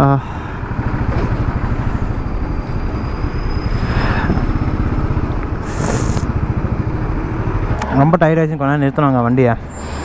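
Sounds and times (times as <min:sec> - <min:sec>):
road and wind noise: 0:00.0 - 0:10.0
motorcycle engine running: 0:04.2 - 0:08.0
short hiss: 0:05.6 - 0:06.3.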